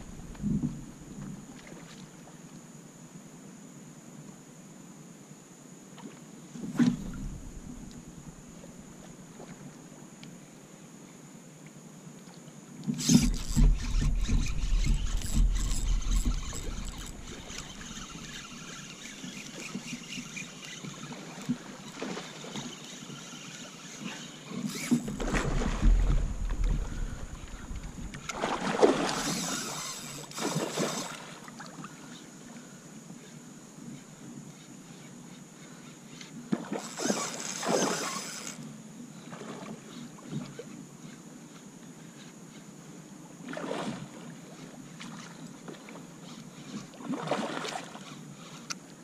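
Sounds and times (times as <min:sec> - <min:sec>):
bumps and rubbing in plastic kayak: 0:00.0 - 0:01.4, 0:12.9 - 0:20.3, 0:24.6 - 0:29.3.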